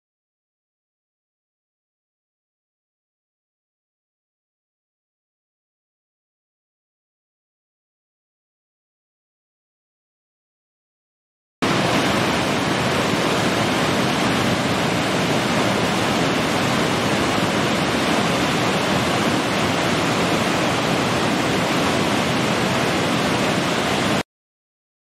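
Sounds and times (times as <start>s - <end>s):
waterfall rushing: 11.6s - 24.2s.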